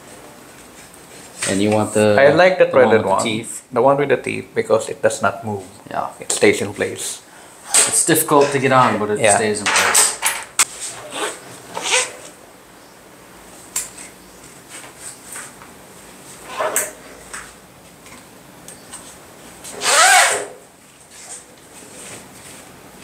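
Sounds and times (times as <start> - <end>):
nylon webbing rubbing: 10.7 - 12.4, 19.7 - 22.6.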